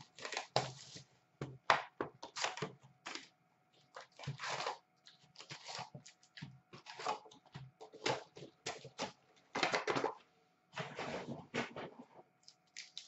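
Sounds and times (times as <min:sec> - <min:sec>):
wrappers tearing and crinkling: 0:12.4 - 0:13.0.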